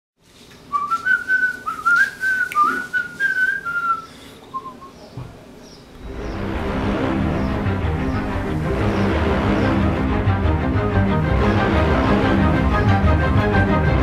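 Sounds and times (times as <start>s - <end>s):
man whistling a tune: 0.7s - 5.0s
music: 6.1s - 14.0s.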